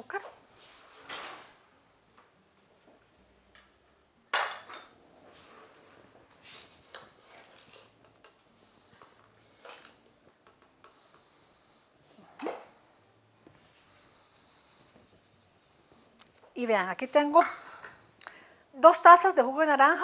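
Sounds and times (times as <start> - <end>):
rustling: 5.2 - 10.8.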